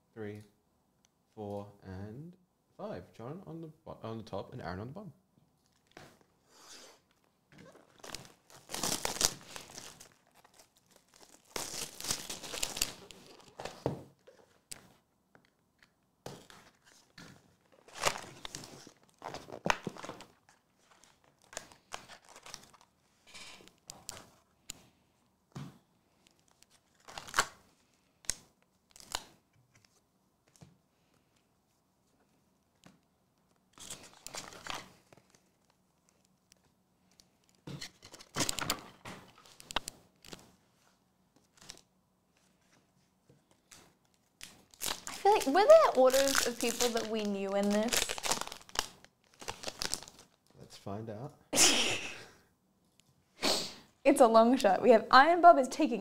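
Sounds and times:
shrink wrap tearing and crinkling: 7.0 - 13.6, 17.7 - 24.4, 26.3 - 27.7, 28.3 - 29.8, 33.6 - 36.4, 37.1 - 40.6, 43.7 - 50.5.

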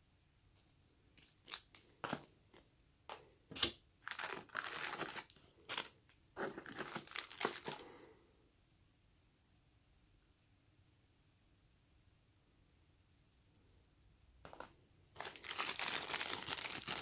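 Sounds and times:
plastic wrapping crinkling: 1.2 - 2.3, 3.6 - 7.8, 14.5 - 17.0.

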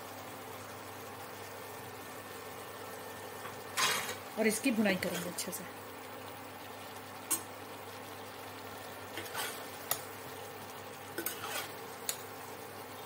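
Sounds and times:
faint steady sizzle: 0.0 - 13.0
spoon stirring food in a pot: 9.1 - 10.1, 11.1 - 12.3.

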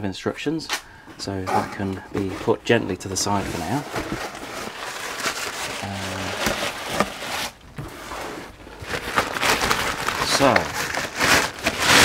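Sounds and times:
plastic bag rustling and crinkling: 1.2 - 12.0.

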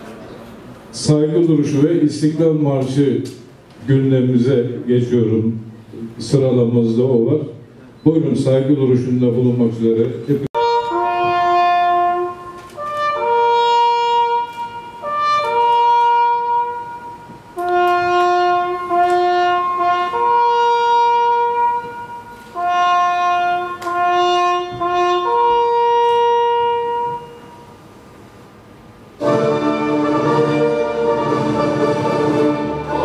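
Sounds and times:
solo brass call in long notes: 10.6 - 27.9, 29.2 - 33.0.

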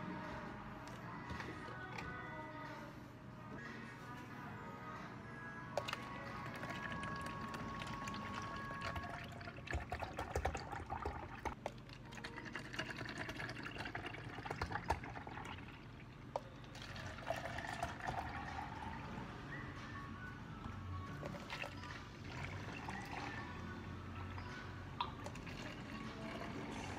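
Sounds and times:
liquid pouring into cup: 5.8 - 19.1, 21.2 - 23.5, 25.0 - 26.9.

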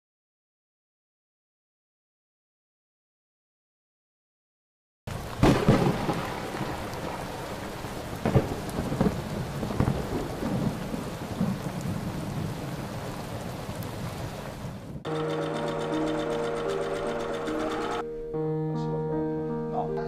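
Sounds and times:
rolling thunder: 5.1 - 15.1
steady rain: 5.1 - 18.0.

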